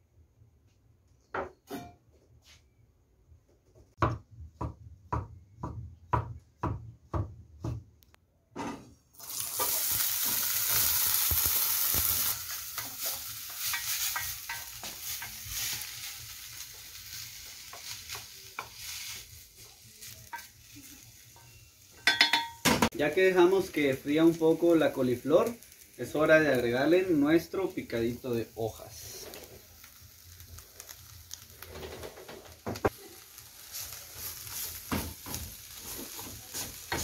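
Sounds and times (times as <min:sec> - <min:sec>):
food sizzling in hot oil: 0:09.1 - 0:37.0.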